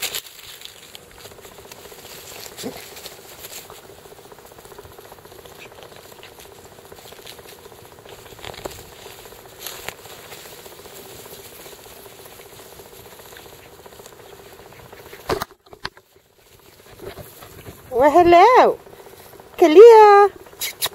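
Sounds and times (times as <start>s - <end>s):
puppies scuffling on grass: 0.0s - 20.6s
faint steady hum: 0.0s - 20.9s.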